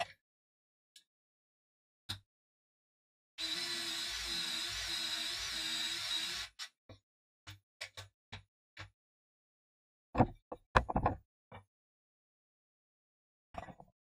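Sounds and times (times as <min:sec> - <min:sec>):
cordless drill whining: 0:03.4 - 0:06.7
boards knocking on bench: 0:10.2 - 0:11.2.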